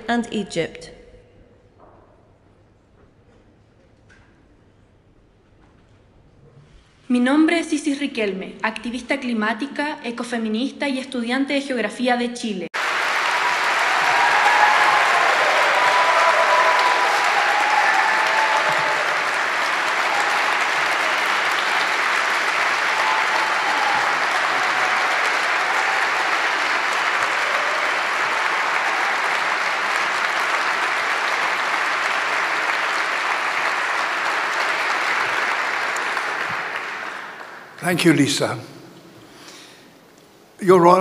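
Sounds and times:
large audience applauding: 12.8s - 39.7s.

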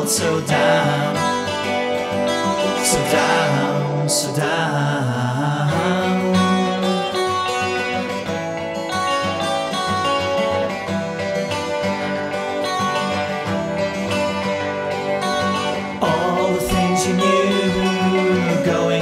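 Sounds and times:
strummed guitars over a beat: 0.0s - 19.0s.

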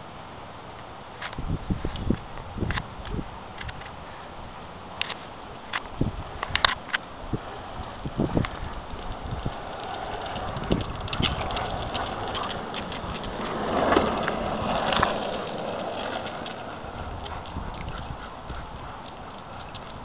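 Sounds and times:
longboard wheels rolling on asphalt: 0.0s - 20.0s
light clicks and taps: 7.8s - 20.0s.

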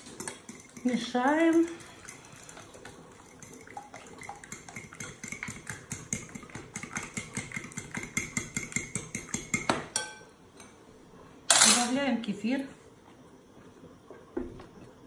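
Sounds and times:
fork beating eggs in glass bowl: 0.0s - 10.1s.

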